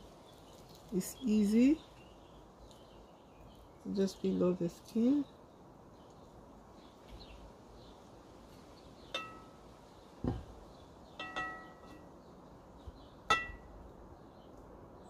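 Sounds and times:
dull knock: 10.2 - 10.5
glass bowl clinking: 11.2 - 12.0.

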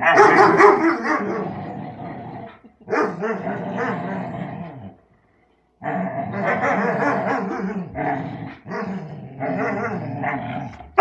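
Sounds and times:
dogs play growling: 1.2 - 11.0.

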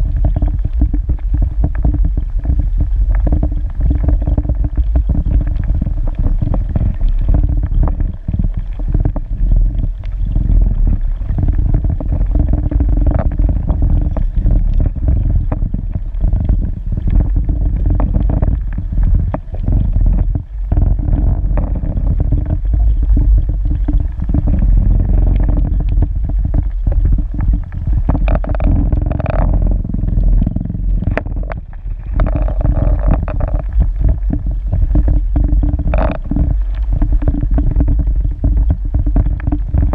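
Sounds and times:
steady hum: 0.0 - 39.9
underwater clicks and knocks: 0.0 - 39.9
underwater low rumble: 0.0 - 39.9.

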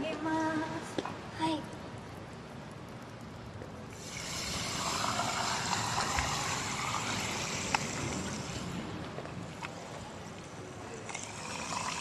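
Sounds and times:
carbonated water pouring over ice: 4.0 - 8.8, 11.1 - 12.0.

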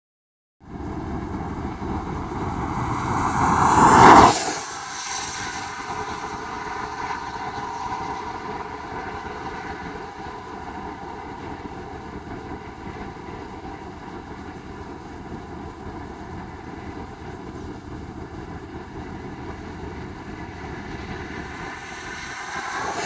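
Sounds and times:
wind rumbling on microphone: 0.6 - 23.0
vehicle passing close by: 0.7 - 11.7, 21.3 - 23.0.

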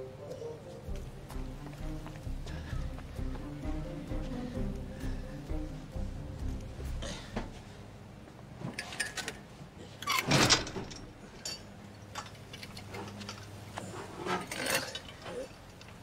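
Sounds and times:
metal pipes clinking and scraping: 10.1 - 15.8.

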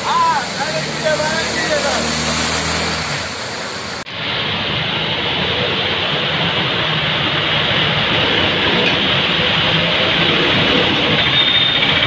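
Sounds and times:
vehicle engines running: 0.0 - 12.0
water churning under wheels: 0.0 - 12.0
water splashing from wheels: 0.0 - 12.0.

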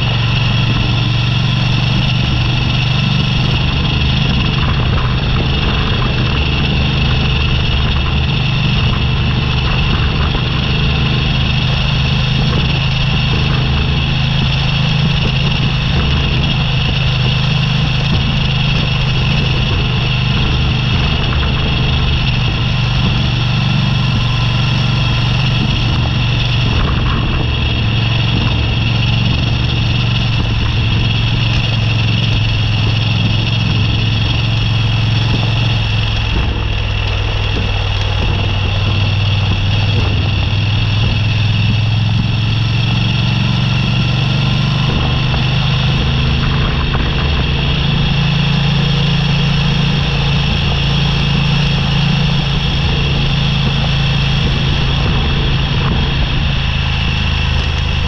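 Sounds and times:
gravel road noise: 0.0 - 58.0
motorcycle engine droning: 0.0 - 58.0.

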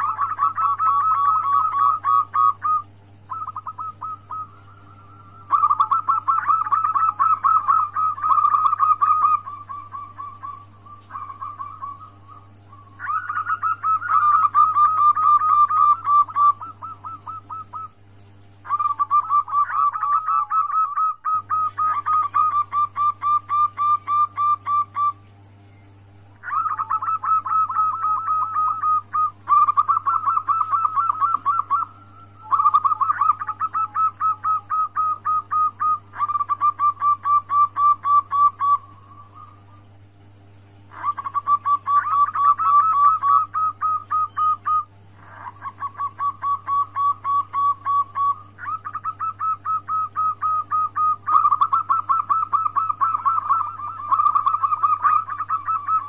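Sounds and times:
dove calling: 0.0 - 56.0.

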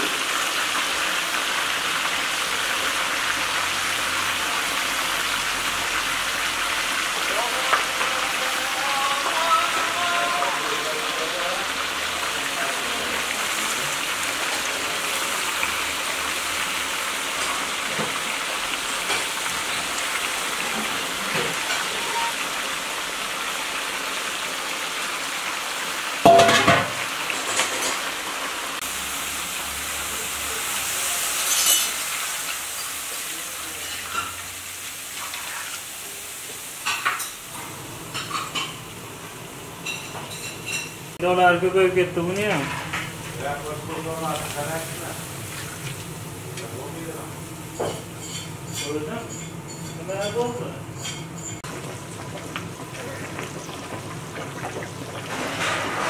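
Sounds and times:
food sizzling in a pot: 0.0 - 56.0
metal clank: 26.3 - 27.7
tongs clinking on pot: 47.8 - 51.6.

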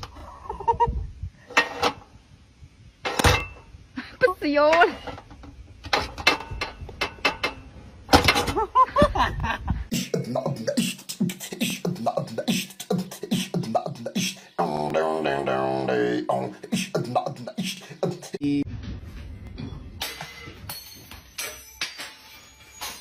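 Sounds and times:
person beatboxing: 9.9 - 18.6.

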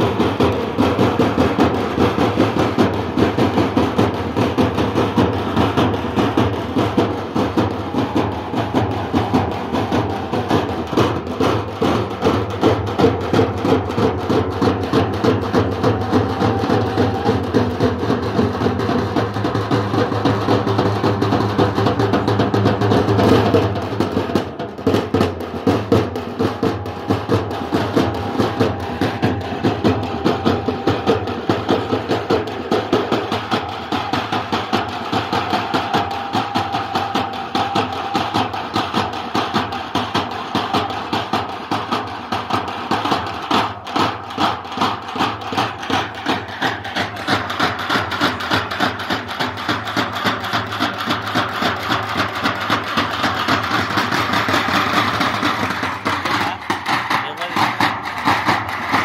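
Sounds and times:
frame drums beaten fast: 0.0 - 59.0.

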